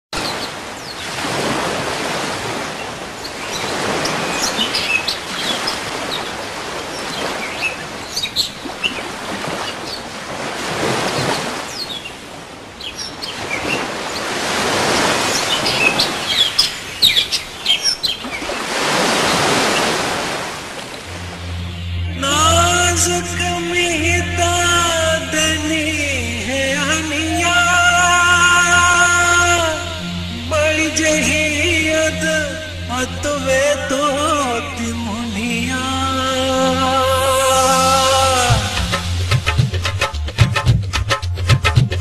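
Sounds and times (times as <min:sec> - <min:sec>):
waves washing ashore: 0:00.2 - 0:42.0
small birds chirping: 0:02.8 - 0:10.1, 0:11.1 - 0:12.2, 0:12.8 - 0:20.0.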